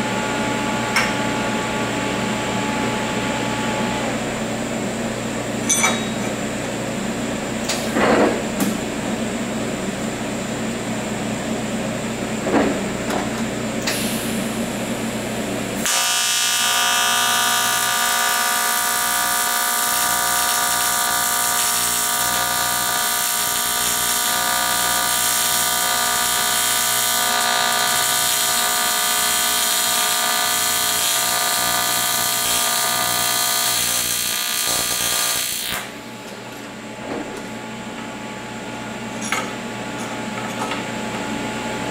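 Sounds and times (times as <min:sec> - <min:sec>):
welding arc buzzing: 0:13.9 - 0:36.1.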